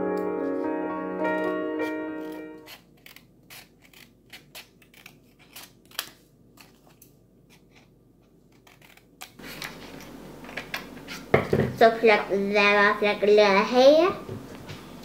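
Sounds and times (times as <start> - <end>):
scissors snipping paper: 2.2 - 7.9, 8.5 - 9.8.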